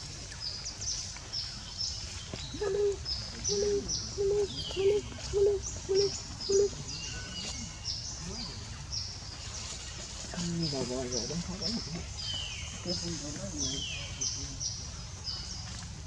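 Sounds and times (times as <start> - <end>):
small birds chirping: 0.2 - 16.0
bird low hooting: 2.5 - 6.8.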